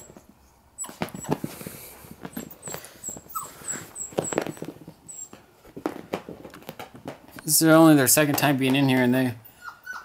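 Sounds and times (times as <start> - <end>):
light knocks and scuffs: 0.0 - 9.3
puppy whimpering: 0.8 - 1.6, 2.2 - 5.5, 9.4 - 10.0.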